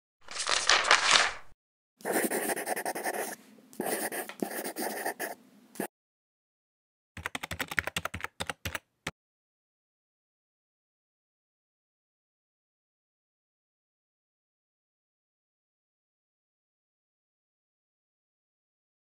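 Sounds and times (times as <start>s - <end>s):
pencil scribbling on paper: 2.0s - 5.9s.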